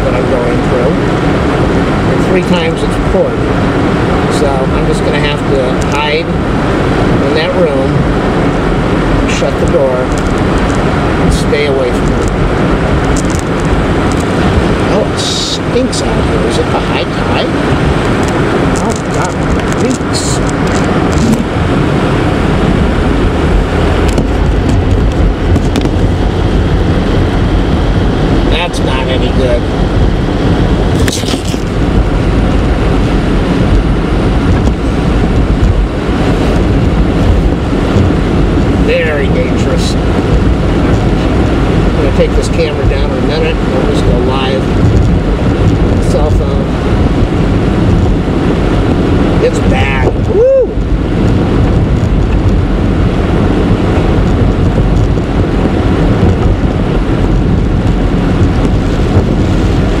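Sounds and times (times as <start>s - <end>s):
car road noise: 0.0s - 60.0s.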